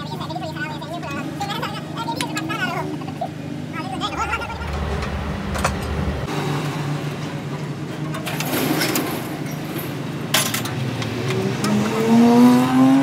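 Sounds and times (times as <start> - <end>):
engine running: 3.7 - 7.8.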